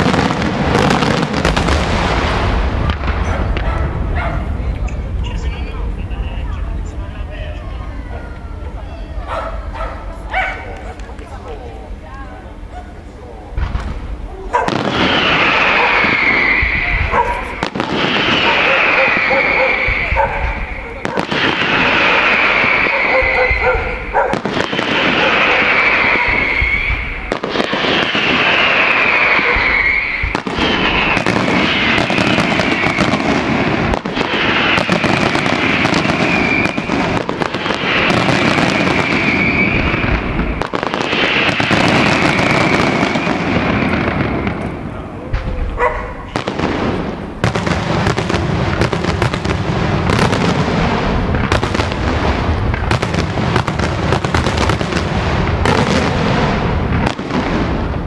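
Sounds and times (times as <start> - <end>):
fireworks bangs: 0.0 - 12.7, 13.5 - 58.0
falling firework whistle: 14.6 - 44.6.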